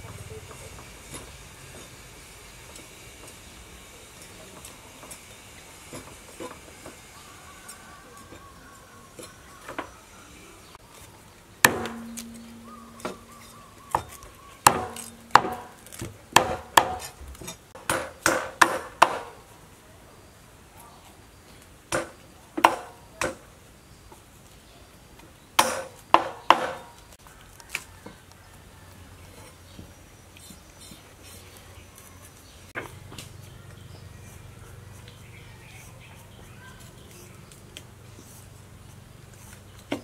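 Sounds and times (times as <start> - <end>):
cleaver chopping fish on wood: 11.6 - 13.3, 13.9 - 17.2, 17.8 - 19.4, 21.9 - 23.4, 25.6 - 26.9
low ring: 11.7 - 13.8.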